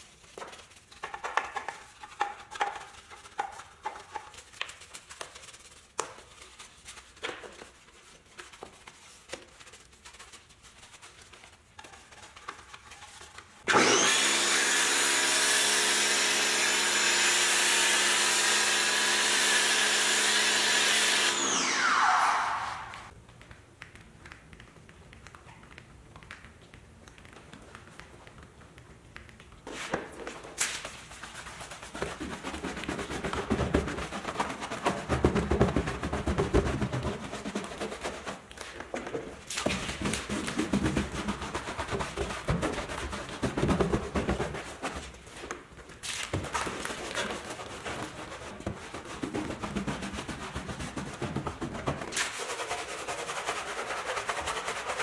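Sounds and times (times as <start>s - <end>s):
brush scrubbing tire: 47.0s - 55.0s.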